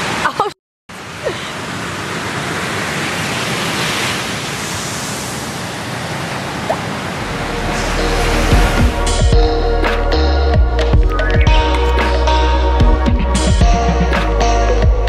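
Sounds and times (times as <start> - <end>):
ocean surf breaking: 0.9 - 10.1.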